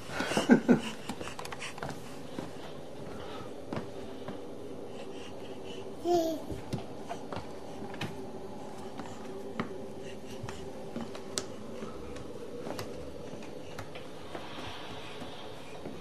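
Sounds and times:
steady hum: 0.0 - 16.0
hands and knees tapping floor: 10.4 - 14.1.

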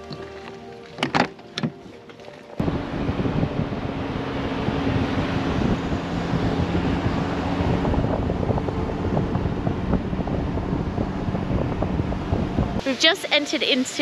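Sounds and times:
road noise: 0.0 - 14.0
vehicle engine hum: 0.0 - 14.0
wind on microphone: 2.6 - 12.9.

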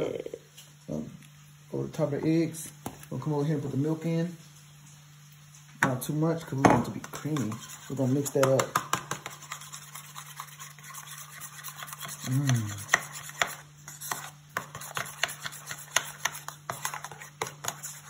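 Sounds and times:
utensil scraping against a bowl: 6.9 - 18.0.

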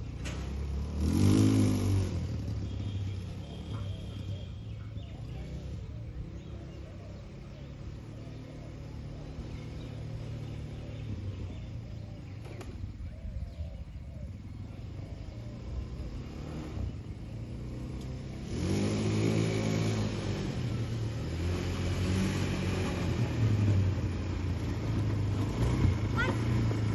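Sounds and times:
quad engine driving on grass: 0.0 - 26.9.

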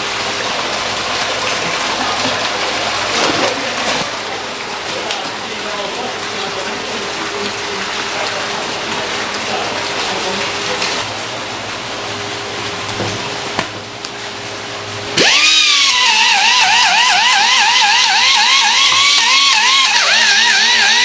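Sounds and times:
water splashing in fish tank: 0.0 - 21.0
powered fish scaler whining: 15.2 - 21.0.

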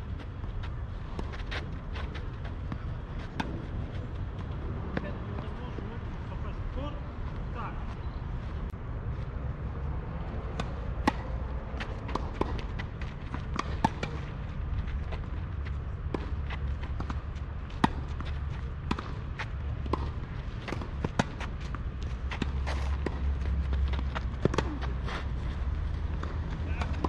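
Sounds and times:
tennis balls struck by rackets: 2.6 - 3.7, 10.4 - 14.4, 16.0 - 25.0.

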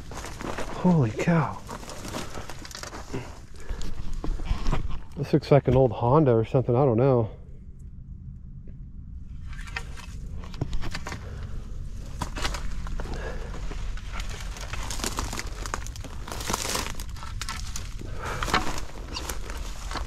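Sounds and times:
footsteps crunching on loose rock: 0.0 - 5.9, 10.5 - 20.0
steady low rumble: 0.0 - 20.0.

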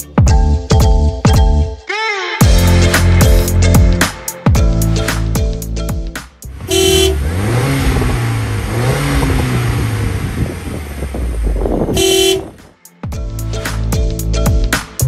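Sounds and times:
car engine revving: 6.5 - 12.7.

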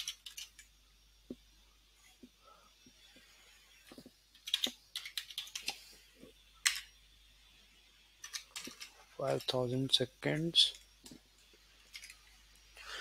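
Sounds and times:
computer keyboard typing: 0.0 - 0.7, 4.3 - 5.8.

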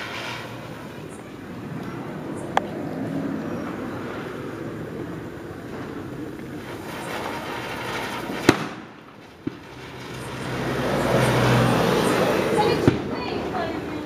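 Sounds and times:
firecracker bang: 0.0 - 2.1, 5.6 - 13.8
rushing noise of spraying sparks: 0.0 - 14.0.

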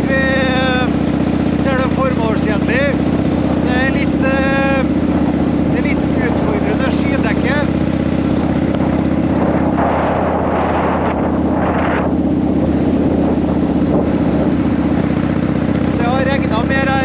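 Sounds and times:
motorcycle engine running: 0.0 - 17.0
wind rushing over microphone: 0.0 - 17.0.

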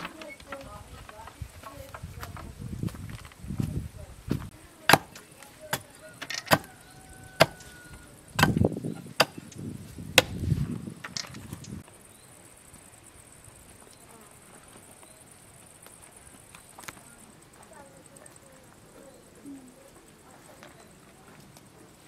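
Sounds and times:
axe chopping wood: 4.9 - 6.7, 7.4 - 7.7, 8.4 - 10.4.

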